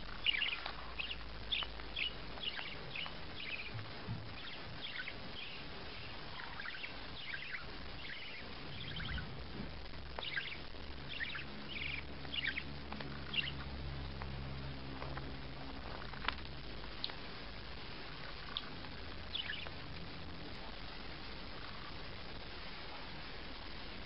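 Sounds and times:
budgerigar chirping: 0.0s - 9.4s, 10.2s - 13.7s, 18.3s - 19.8s.

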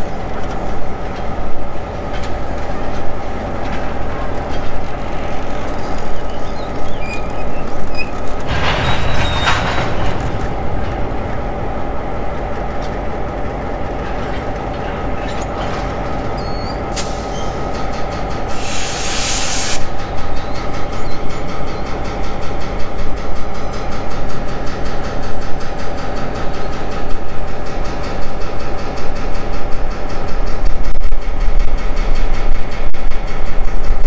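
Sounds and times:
diesel locomotive rumbling: 0.0s - 34.0s
short hiss burst: 18.5s - 19.9s.

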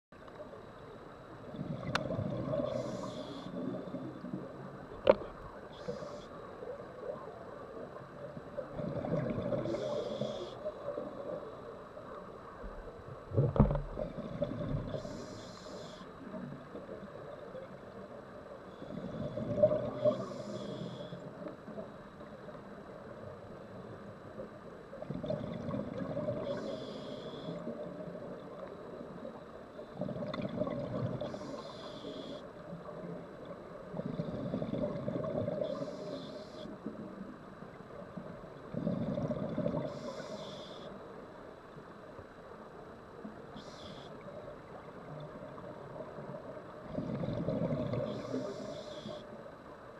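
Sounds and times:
diver breathing through regulator: 2.6s - 3.8s, 9.6s - 10.7s, 14.8s - 16.1s, 18.8s - 21.2s, 35.5s - 36.8s, 38.8s - 40.9s, 47.4s - 49.3s.

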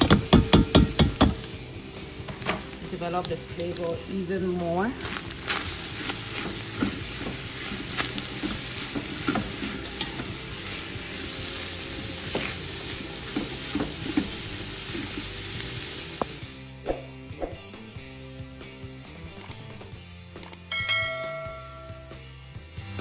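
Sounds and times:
meat and vegetables sizzling: 0.0s - 16.8s.

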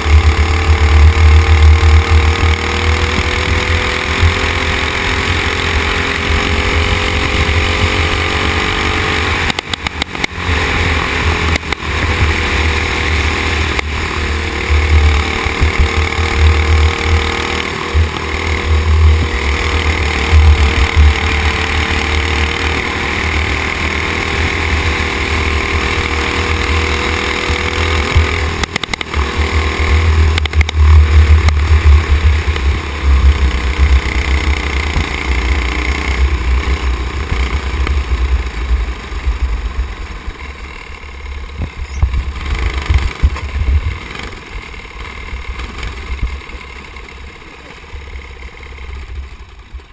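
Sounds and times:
go-kart engine running hard: 0.0s - 49.9s
wind rumble on microphone: 41.5s - 44.1s.

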